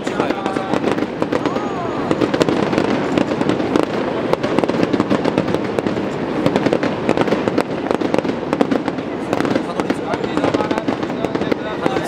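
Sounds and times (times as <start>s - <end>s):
fireworks cracking and popping: 0.0s - 12.0s.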